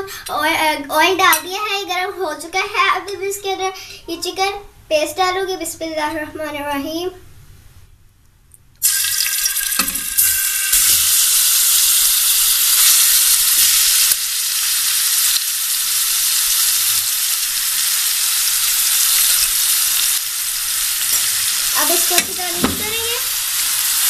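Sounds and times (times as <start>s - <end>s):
chicken sizzling in hot oil: 8.8s - 24.0s.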